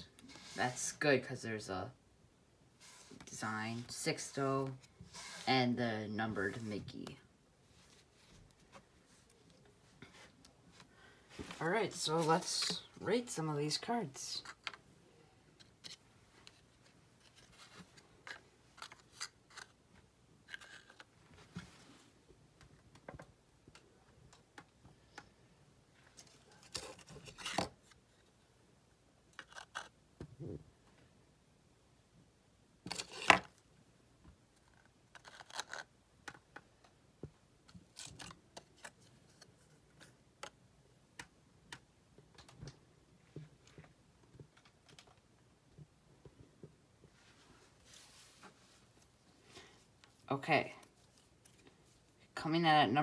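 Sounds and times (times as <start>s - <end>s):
cards rustling: 15.6s - 19.8s, 20.4s - 21.2s, 26.1s - 28.3s, 32.9s - 33.5s, 34.6s - 36.7s, 37.7s - 40.6s.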